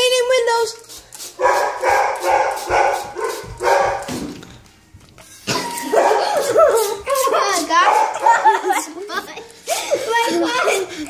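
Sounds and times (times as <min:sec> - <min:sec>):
dog barking: 0:01.4 - 0:04.1, 0:05.8 - 0:07.0, 0:07.8 - 0:08.6.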